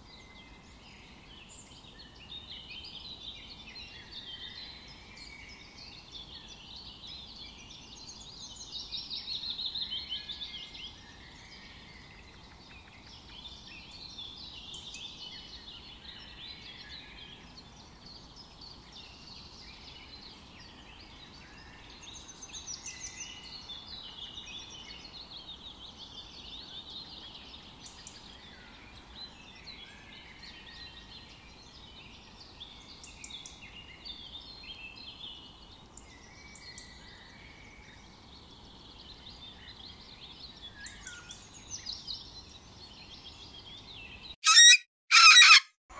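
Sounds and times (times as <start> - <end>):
birds chirping and trilling: 38.9 - 45.8.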